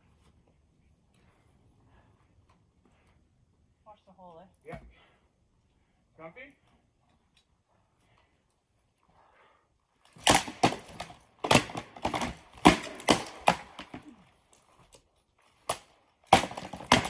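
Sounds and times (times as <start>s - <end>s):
weapons striking wooden shields: 10.2s - 14.2s, 16.3s - 17.0s.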